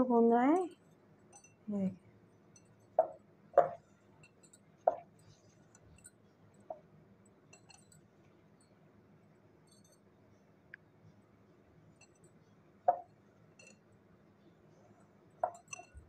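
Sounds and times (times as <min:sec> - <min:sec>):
dough knocking against glass bowl: 0:02.6 - 0:05.2, 0:12.9 - 0:13.8, 0:15.4 - 0:16.0.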